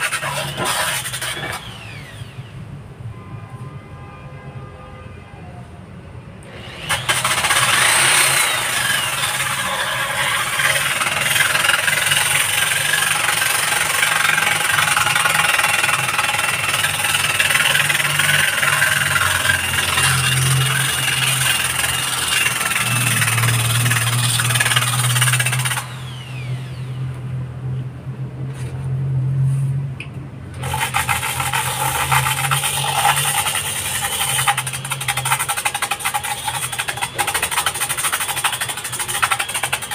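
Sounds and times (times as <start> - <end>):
flap disc grinding concrete: 0.0 - 2.1, 6.6 - 26.7, 30.6 - 39.9
electric drill motor hum: 0.0 - 2.6, 6.5 - 27.3, 30.6 - 39.9.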